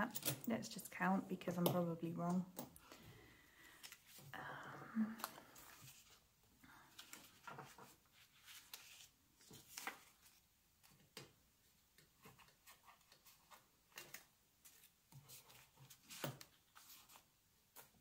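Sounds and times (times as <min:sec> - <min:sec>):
banknotes rustling: 0:05.3 - 0:10.4.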